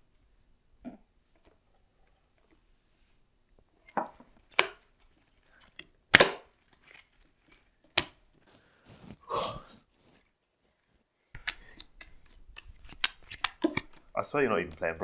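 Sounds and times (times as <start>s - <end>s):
cards slapped on wooden table: 4.5s - 4.8s, 6.1s - 6.5s.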